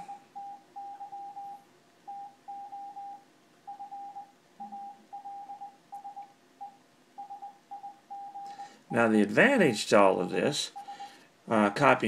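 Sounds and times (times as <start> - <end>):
morse code tone: 0.0 - 8.6.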